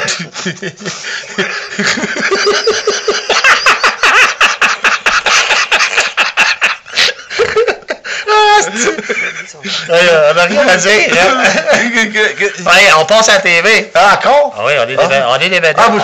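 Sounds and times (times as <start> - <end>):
people laughing breathlessly: 0.0 - 12.7.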